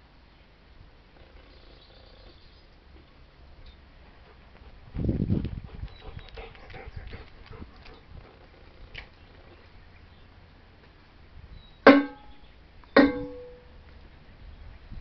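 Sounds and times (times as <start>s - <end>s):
sharp knocks with ringing tone: 11.9s - 12.4s, 13.0s - 13.6s.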